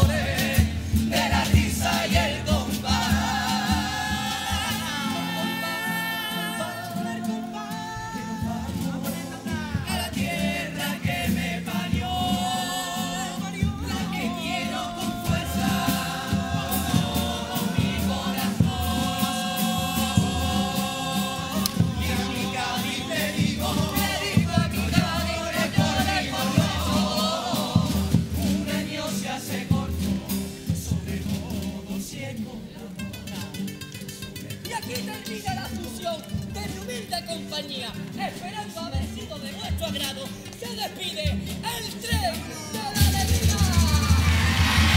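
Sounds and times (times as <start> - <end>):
drum beat: 0.0 - 5.4, 8.0 - 31.5, 43.0 - 44.9
male choir singing in harmony: 0.0 - 33.7, 43.8 - 44.9
guitars: 0.0 - 44.9.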